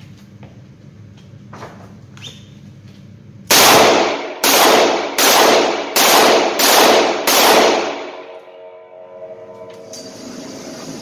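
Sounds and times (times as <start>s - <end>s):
revolver shots echoing indoors: 3.4s - 10.7s.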